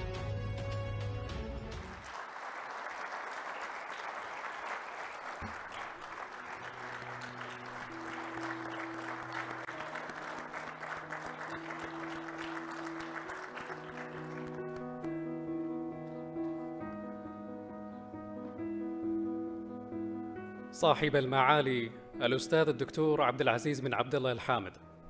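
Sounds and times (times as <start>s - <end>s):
audience applauding: 1.7s - 15.1s
instrumental music: 5.5s - 23.7s.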